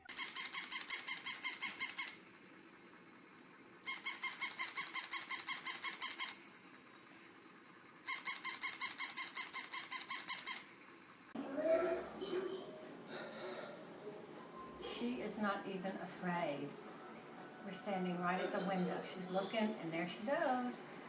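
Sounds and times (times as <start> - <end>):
squeaky toy yips: 0.0 - 2.2, 3.9 - 6.4, 8.1 - 10.7.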